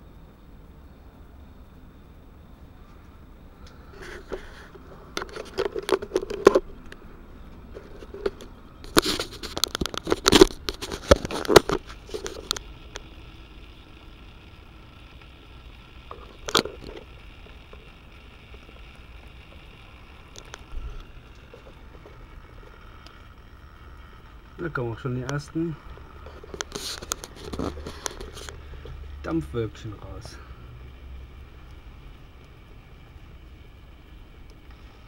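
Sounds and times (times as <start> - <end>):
faint steady hiss: 0.0 - 35.0
camera handling clicks and scrapes: 4.0 - 6.7, 7.7 - 12.6, 26.2 - 28.6.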